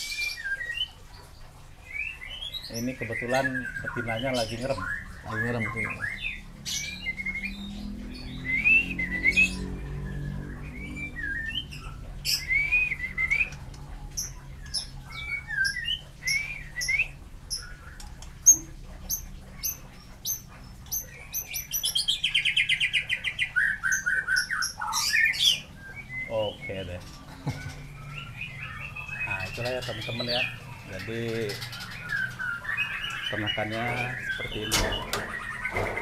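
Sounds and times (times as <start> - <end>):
bird singing whistled phrases: 1.9 - 13.6, 14.2 - 20.4, 21.0 - 27.0.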